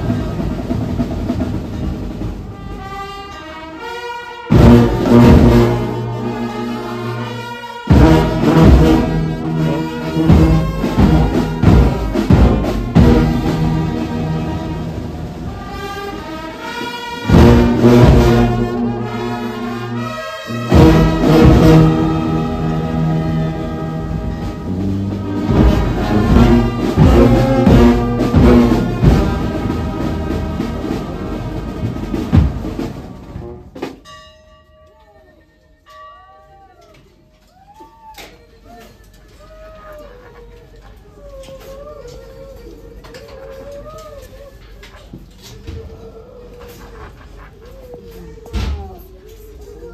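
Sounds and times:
brass band playing: 0.0s - 34.0s
bass drum beats: 7.9s - 14.4s, 24.0s - 33.8s.

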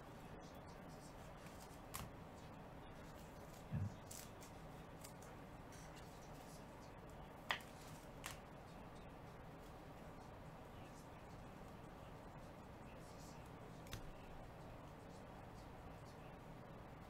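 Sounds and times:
sharp clicks of cards: 7.5s - 8.4s, 13.8s - 14.1s.

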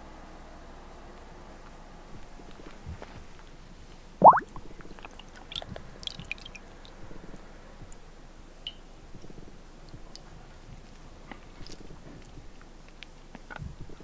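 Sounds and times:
wet squelches and drips: 4.2s - 7.0s.

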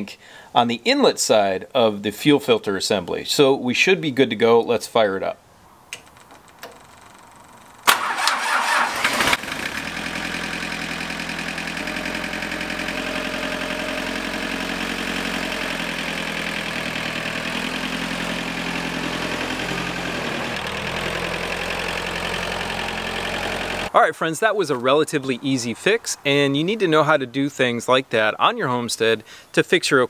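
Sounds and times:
starter motor cranking: 7.8s - 23.9s
diesel engine idling: 7.9s - 23.9s.

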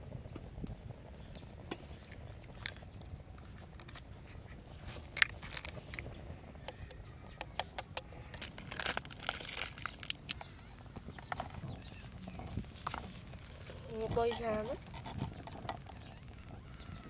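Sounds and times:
eggs cracking into pan: 5.0s - 11.9s.

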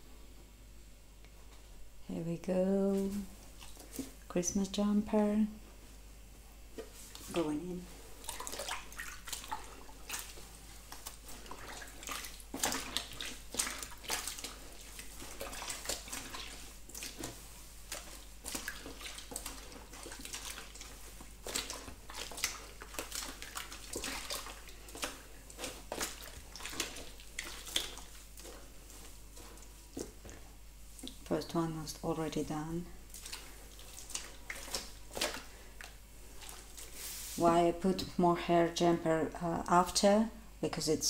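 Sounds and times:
wet fabric squelching: 2.9s - 4.3s, 6.8s - 37.6s
water sloshing in a basin: 3.0s - 4.4s, 6.8s - 38.2s.

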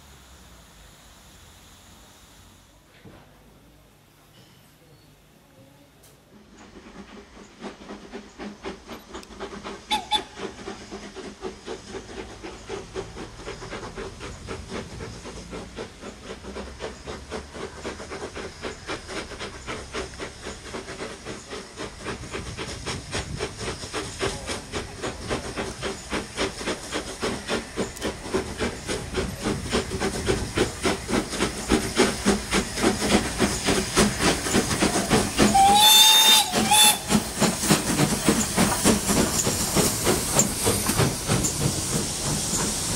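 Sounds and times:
steam locomotive chuffing: 0.0s - 42.9s
steam whistle: 35.4s - 37.2s.

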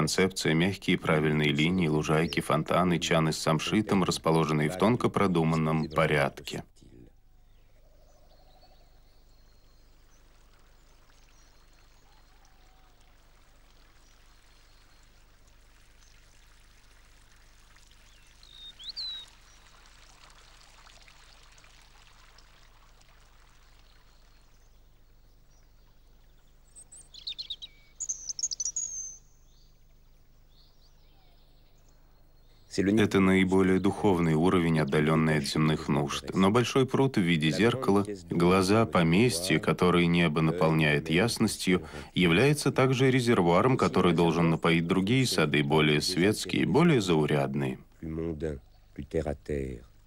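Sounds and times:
bird chirping: 0.0s - 16.5s, 18.0s - 19.9s, 23.5s - 50.0s
fountain water splashing into pond: 9.3s - 26.5s.

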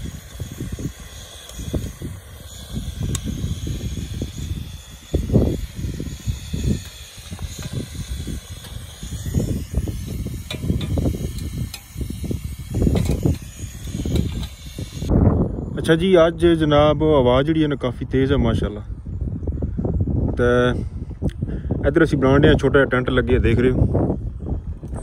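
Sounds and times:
gas burner hissing: 0.0s - 15.2s
wind buffeting microphone: 0.0s - 25.0s.

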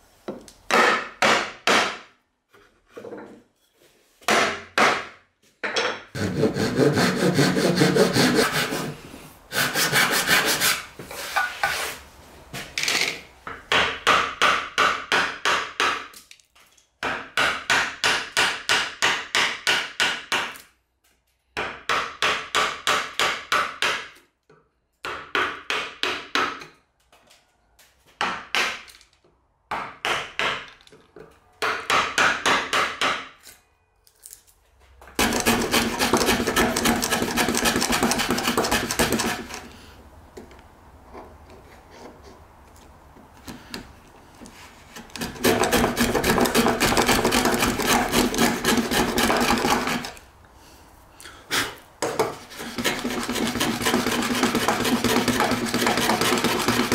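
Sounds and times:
mallet striking chisel into wood: 13.7s - 16.0s, 31.6s - 33.3s.

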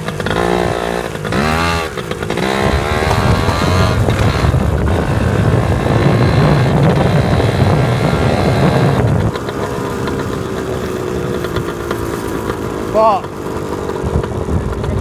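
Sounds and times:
off-road motorbike engine revving: 0.0s - 15.0s.

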